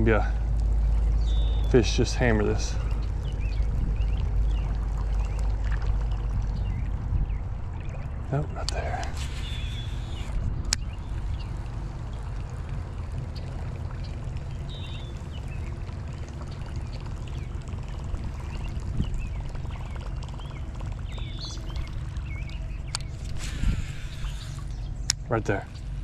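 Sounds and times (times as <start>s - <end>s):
wind rumble on microphone: 0.0s - 26.0s
lure plopping and gurgling on water: 0.5s - 26.0s
bird chirps: 0.9s - 1.8s, 8.5s - 11.5s, 14.0s - 15.7s, 18.5s - 25.9s.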